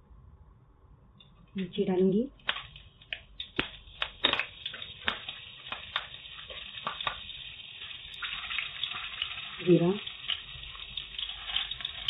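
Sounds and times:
faint frying sizzle: 0:01.6 - 0:12.0
oil crackling and popping: 0:02.4 - 0:12.0.

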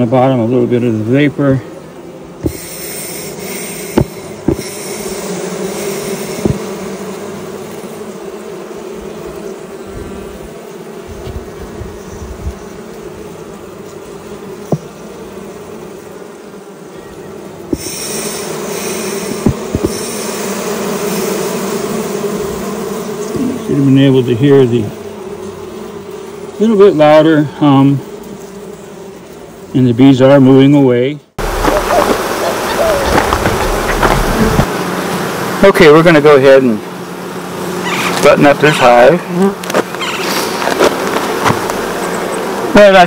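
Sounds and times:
honeybees humming: 0:00.0 - 0:43.0
vapor smoker hiss: 0:02.4 - 0:07.0, 0:17.6 - 0:21.4.

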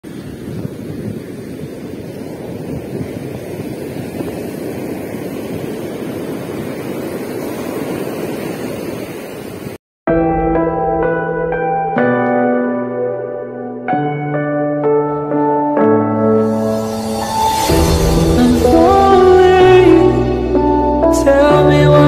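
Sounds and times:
surf breaking on beach: 0:00.0 - 0:09.8
wind buffeting microphone: 0:00.0 - 0:09.8
soft music with held notes: 0:10.1 - 0:22.0.

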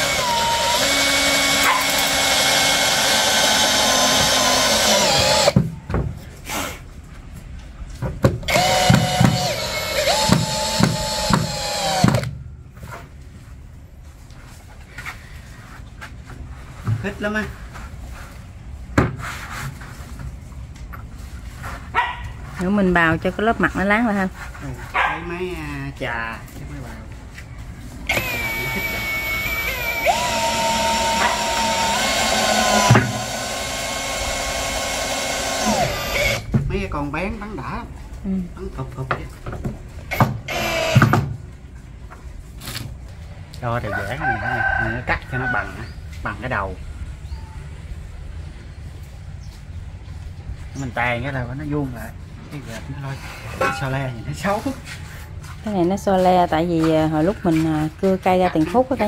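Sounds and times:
electric planer cutting wood: 0:00.0 - 0:05.6, 0:28.1 - 0:36.4
power drill whine: 0:00.0 - 0:05.6, 0:08.5 - 0:12.3, 0:28.1 - 0:36.5, 0:40.1 - 0:41.2.

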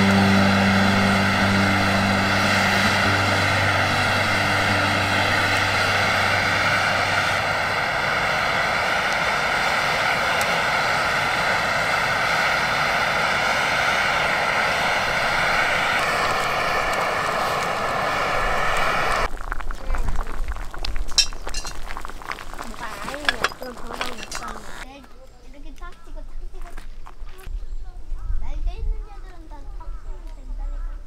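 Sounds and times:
gas stove burner roaring: 0:00.0 - 0:19.3.

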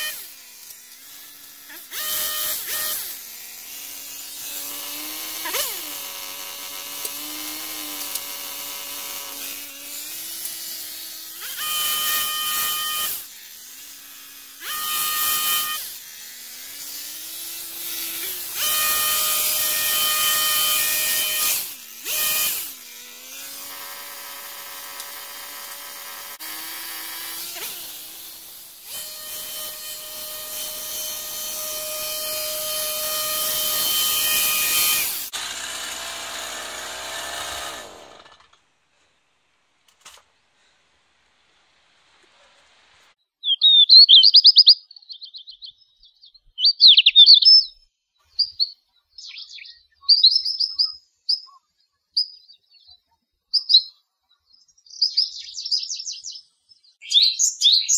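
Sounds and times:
hedge trimmer engine revving: 0:00.0 - 0:38.6.

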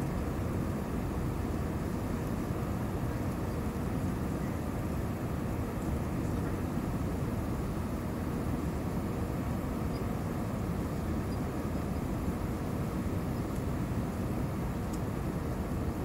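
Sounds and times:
aircraft cabin engine roar: 0:00.0 - 0:16.0
faint steady hum: 0:00.0 - 0:16.0.

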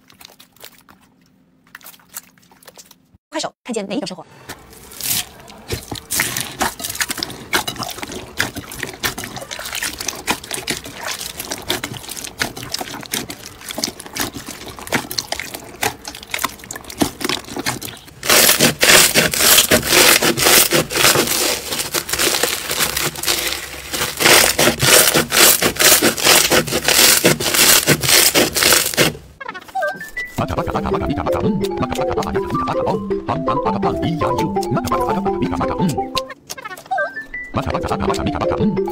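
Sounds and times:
slime crackling and squishing: 0:04.7 - 0:29.4.

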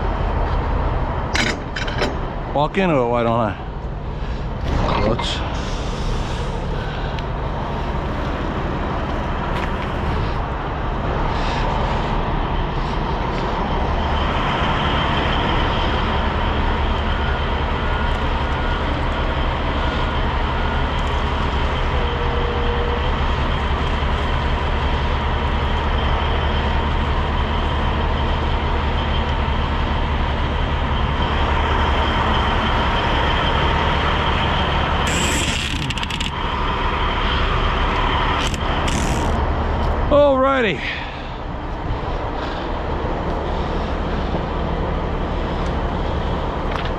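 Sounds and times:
diesel truck engine idling: 0:00.0 - 0:46.9
high steady whine: 0:30.2 - 0:46.9.

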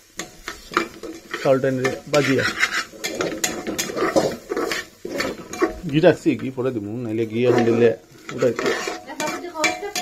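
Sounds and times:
light sizzle: 0:00.0 - 0:10.0
metal spoon scraping a pot: 0:00.2 - 0:06.4, 0:07.2 - 0:10.0.

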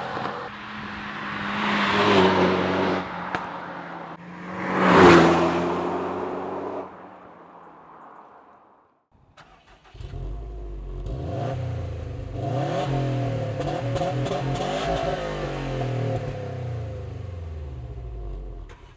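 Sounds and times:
car engine revving: 0:09.4 - 0:18.9.

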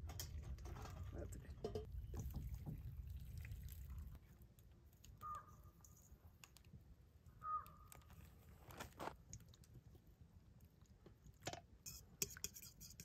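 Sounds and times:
bird calling: 0:05.2 - 0:05.7, 0:07.3 - 0:08.1.

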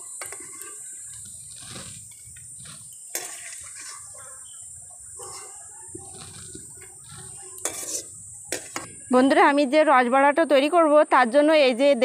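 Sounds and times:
steady high hiss: 0:00.0 - 0:05.2, 0:06.6 - 0:11.4
fritters sizzling in hot oil: 0:06.6 - 0:09.4
metal spoon clinking against pan: 0:07.6 - 0:08.0.

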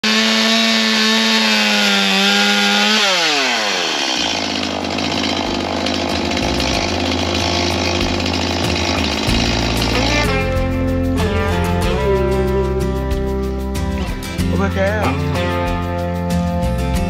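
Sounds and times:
chainsaw revving: 0:00.0 - 0:14.6
music with stepping bass line: 0:05.4 - 0:17.0.

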